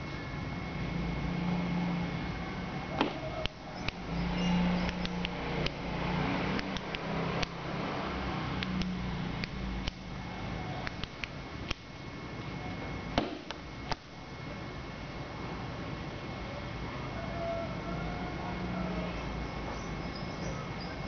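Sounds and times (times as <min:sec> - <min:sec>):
low hum: 0:00.0 - 0:21.0
sharp clicks: 0:03.0 - 0:05.8, 0:06.5 - 0:07.6, 0:08.6 - 0:10.1, 0:10.8 - 0:11.9.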